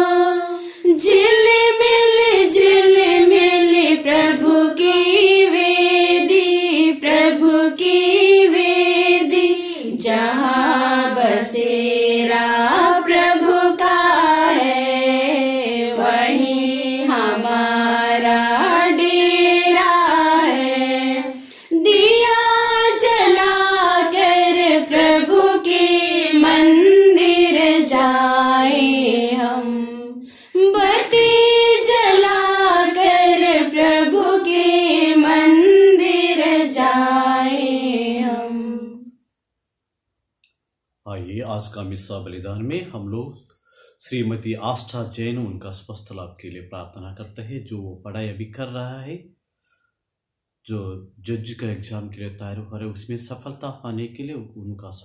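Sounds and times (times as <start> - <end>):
woman singing a hymn: 0.0 - 39.0.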